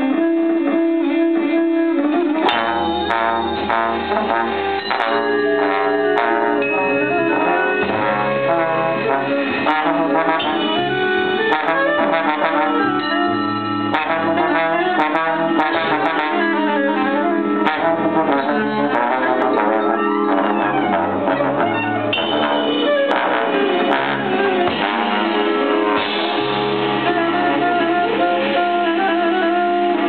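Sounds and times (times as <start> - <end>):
low bass notes: 0.0 - 30.0
low brass: 0.0 - 30.0
saxophone: 0.0 - 30.0.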